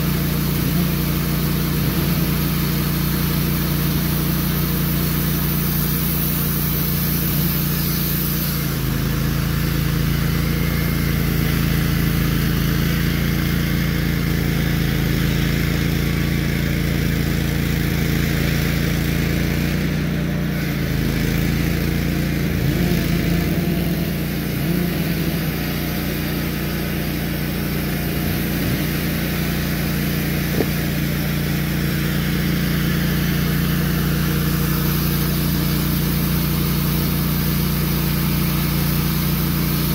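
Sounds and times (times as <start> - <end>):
band blade cutting log: 0.0 - 9.8, 20.4 - 39.8
sawmill engine running: 0.0 - 39.9.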